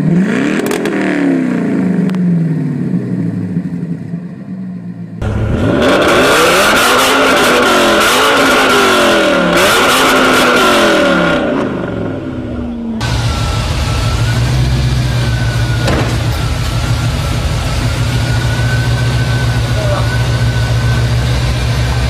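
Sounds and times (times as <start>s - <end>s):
car engine revving and idling: 0.0s - 22.0s
car engine throttle blips: 5.1s - 22.0s
high whine: 11.1s - 22.0s.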